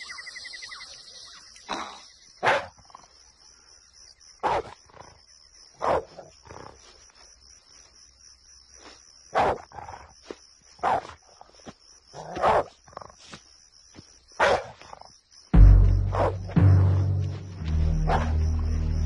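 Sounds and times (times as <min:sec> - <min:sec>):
animal barking: 0:01.7 - 0:02.9, 0:04.4 - 0:04.8, 0:05.8 - 0:06.7, 0:09.3 - 0:09.9, 0:10.8 - 0:11.2, 0:12.1 - 0:13.2, 0:14.4 - 0:15.0, 0:15.8 - 0:18.6
low music hit: 0:15.6 - 0:19.0.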